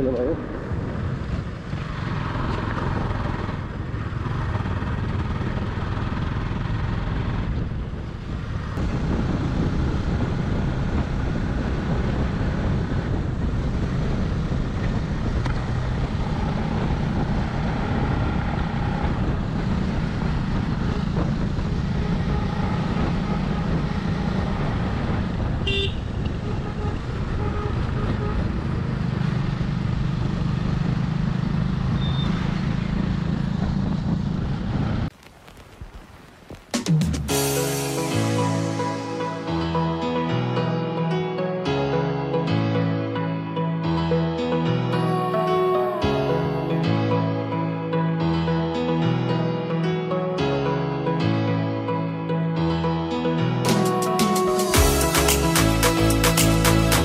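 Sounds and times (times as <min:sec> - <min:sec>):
road noise: 0:00.0 - 0:57.0
motorcycle engine running: 0:00.6 - 0:35.1.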